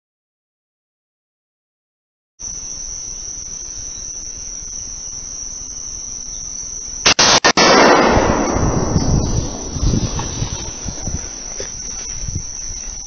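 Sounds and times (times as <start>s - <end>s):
crickets chirring: 2.4s - 13.0s
loud shotgun shot: 7.0s - 11.0s
loud noise: 7.0s - 11.6s.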